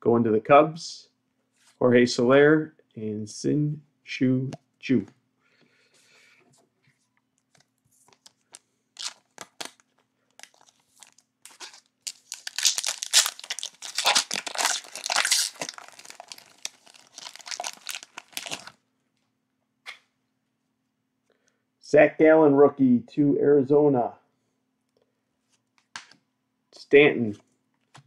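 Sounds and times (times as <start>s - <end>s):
wrapper being torn and crinkled: 8.1s - 18.8s.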